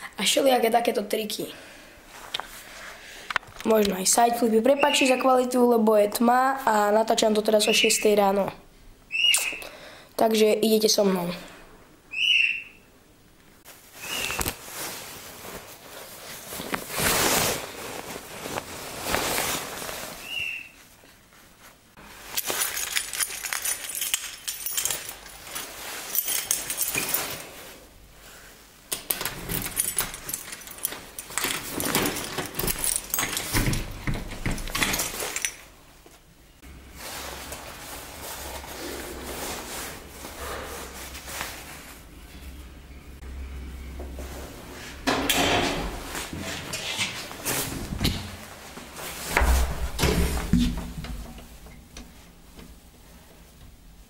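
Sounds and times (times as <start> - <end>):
rustling handling noise: 13.6 - 42.8, 45.8 - 54.0
keys jangling in a lock: 22.4 - 25.4, 26.1 - 27.4, 29.0 - 35.7.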